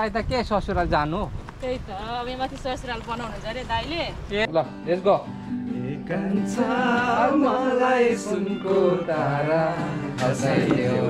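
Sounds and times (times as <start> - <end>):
acoustic guitar: 3.0 - 11.0
man singing: 5.7 - 11.0.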